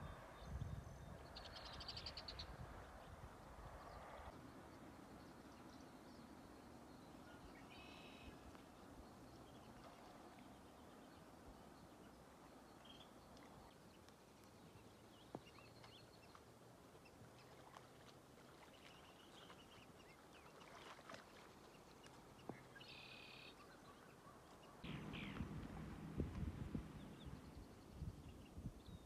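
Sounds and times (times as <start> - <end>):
low rushing noise: 24.9 - 28.2
low hiss: 24.9 - 28.4.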